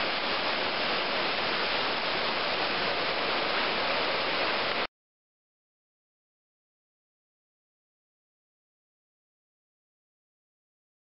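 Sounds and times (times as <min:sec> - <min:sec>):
waterfall rushing into pool: 0:00.0 - 0:04.9.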